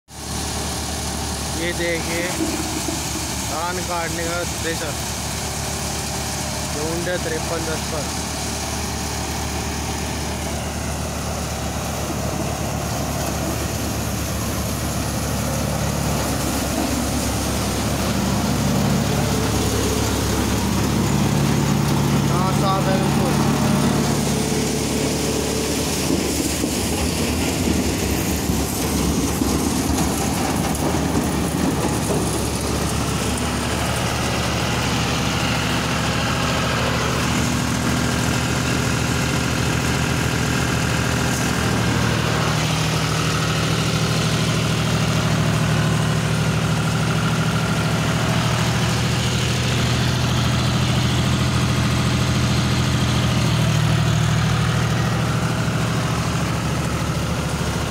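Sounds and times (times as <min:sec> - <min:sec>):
thresher machine noise: 0:00.1 - 0:57.9
tractor diesel engine running: 0:00.1 - 0:57.9.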